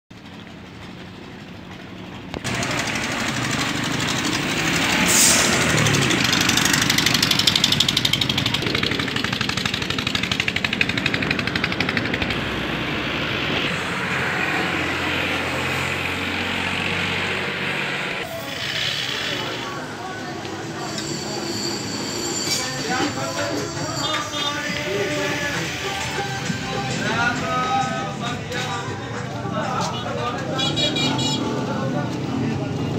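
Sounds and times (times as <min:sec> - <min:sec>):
small engine chugging: 0:05.8 - 0:12.4, 0:18.3 - 0:20.0.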